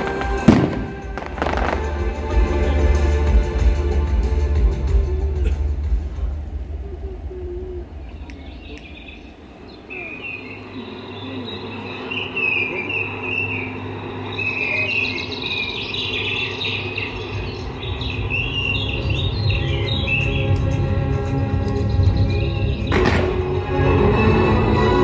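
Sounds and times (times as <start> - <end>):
soft low music: 0.0 - 9.6, 17.0 - 25.0
bird-like chirping calls: 6.9 - 23.1.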